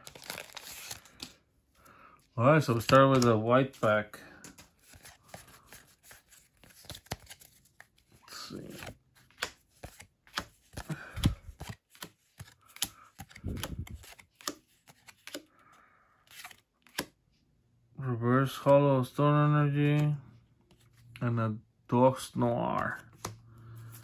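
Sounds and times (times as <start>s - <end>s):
cards sliding off a stack: 8.6s - 15.5s, 16.3s - 17.1s.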